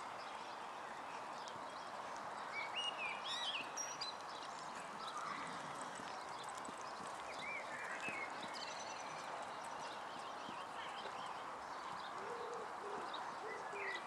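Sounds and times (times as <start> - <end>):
steady outdoor hiss: 0.0 - 14.0
horse hoofbeats on sand: 4.2 - 12.1.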